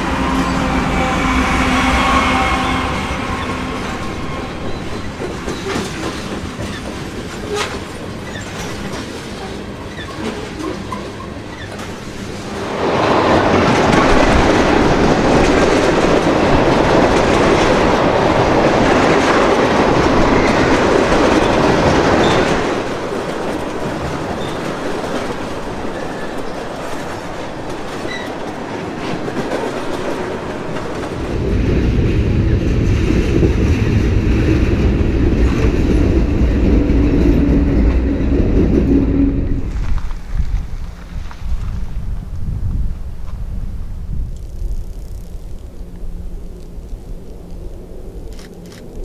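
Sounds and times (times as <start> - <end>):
heavy low rumble: 0.0 - 7.4, 31.2 - 49.0
freight train rolling past: 0.0 - 49.0.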